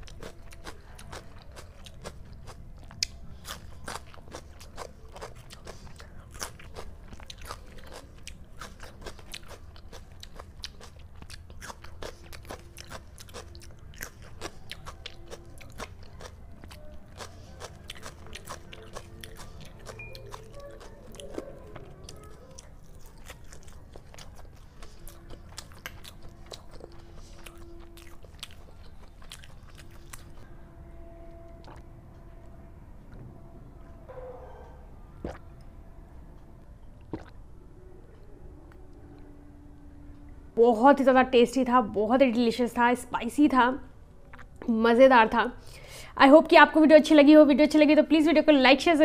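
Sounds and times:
crunching raw onion: 0:00.0 - 0:30.4
wet mouth clicks: 0:37.0 - 0:37.4.

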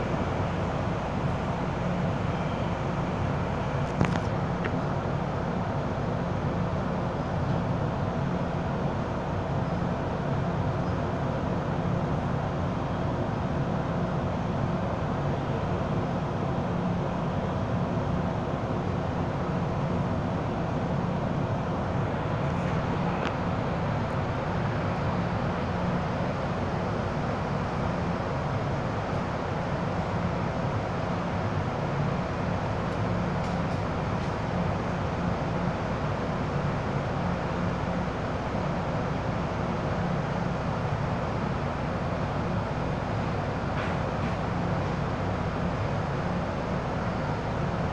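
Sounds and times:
train hum and rumble: 0:00.0 - 0:47.9.

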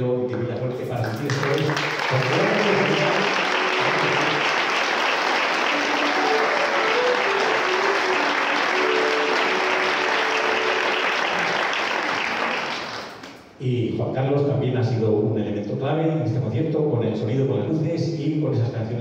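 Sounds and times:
crowd clapping: 0:00.7 - 0:13.5.

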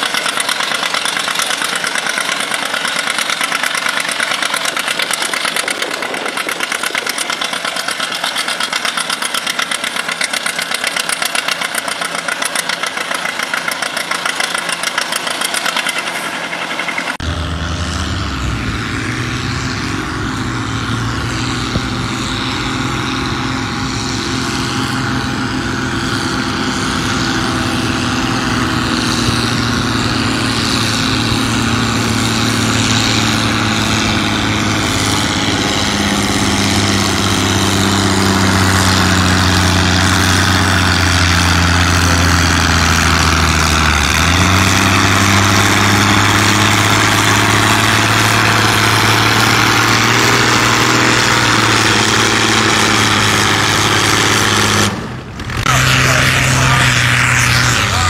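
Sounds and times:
diesel tractor working hard: 0:00.0 - 0:58.0
tractor engine pulsing: 0:00.0 - 0:58.0.

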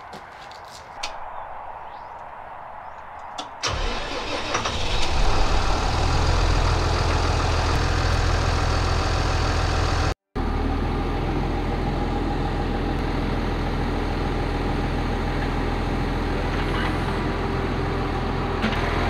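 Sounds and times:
tractor diesel engine starting: 0:03.6 - 0:15.3.

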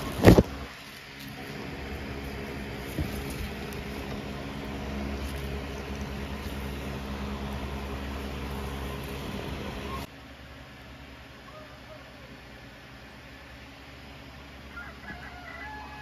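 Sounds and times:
motor humming: 0:00.0 - 0:10.1.

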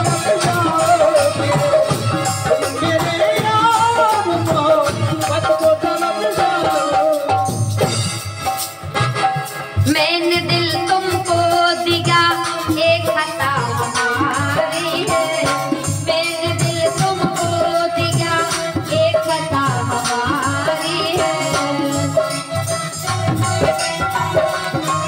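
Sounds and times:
drum beat: 0:00.0 - 0:25.0.

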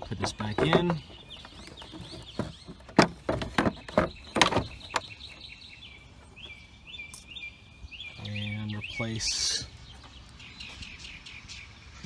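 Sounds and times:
hard plastic knocking: 0:00.0 - 0:05.1.

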